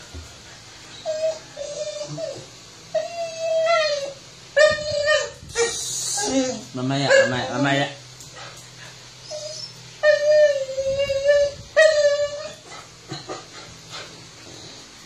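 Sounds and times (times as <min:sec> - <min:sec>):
dog whining: 0:00.9 - 0:07.5, 0:09.2 - 0:13.6.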